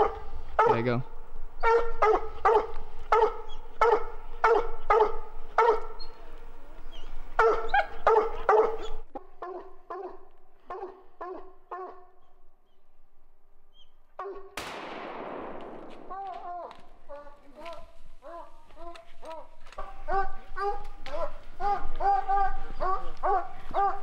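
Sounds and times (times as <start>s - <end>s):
dog barking: 0.0s - 0.8s, 1.6s - 6.0s, 7.4s - 12.1s, 14.2s - 14.6s, 18.2s - 24.0s.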